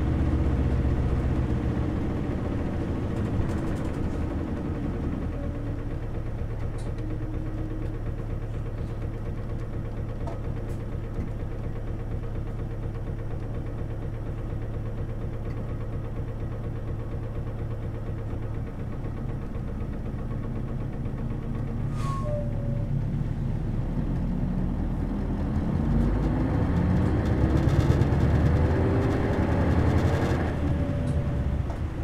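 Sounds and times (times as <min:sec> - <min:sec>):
bus diesel engine idling: 0:00.0 - 0:32.0.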